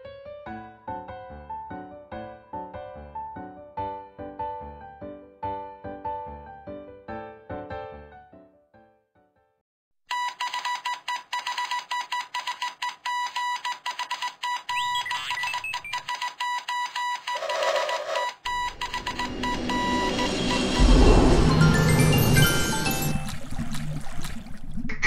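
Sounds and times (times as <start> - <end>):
rapid electronic beeping: 14.6 - 16.2, 17.3 - 22.8
noisy sound effects: 18.5 - 23.8.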